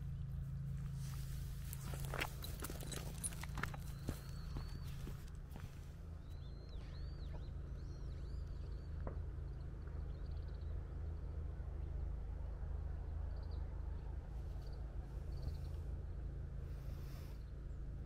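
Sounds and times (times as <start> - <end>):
low steady rumble: 0.0 - 18.0
bird chirping: 1.8 - 12.0.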